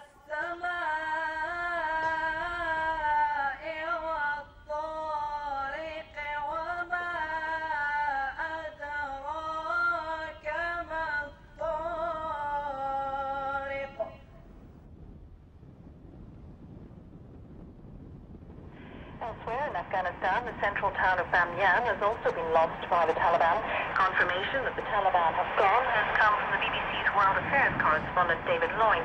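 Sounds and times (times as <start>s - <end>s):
singer breathing: 18.7s - 19.2s.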